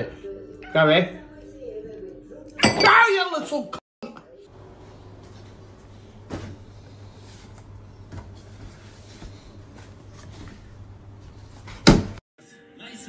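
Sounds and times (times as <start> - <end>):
cupboard door knocks and rustles: 11.7 - 12.2.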